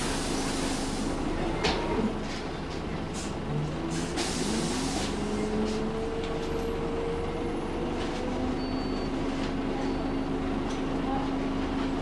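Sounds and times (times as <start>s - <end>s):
bus engine hum: 0.0s - 12.0s
air hiss: 3.9s - 5.2s.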